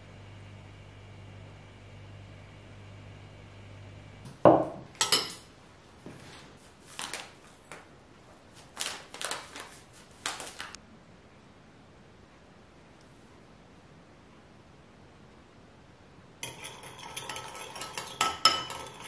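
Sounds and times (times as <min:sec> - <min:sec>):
dish knocking on wooden board: 0:04.5 - 0:04.9
metal spoon scraping ceramic bowl: 0:16.4 - 0:19.0.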